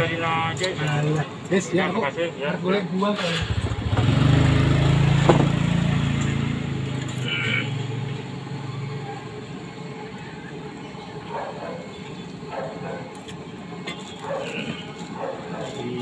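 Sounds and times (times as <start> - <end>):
traffic rumble: 3.2 - 16.0
vehicle hum: 3.3 - 16.0
faint voices: 8.7 - 16.0.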